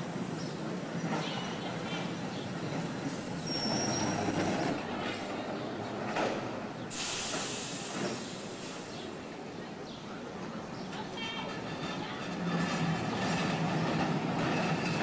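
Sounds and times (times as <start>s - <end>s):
streetcar rolling on rails: 0.0s - 15.0s
loud hiss: 6.9s - 9.0s.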